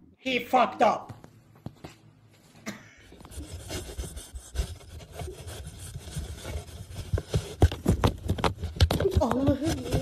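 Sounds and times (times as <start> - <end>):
cat scratching: 3.3 - 10.0.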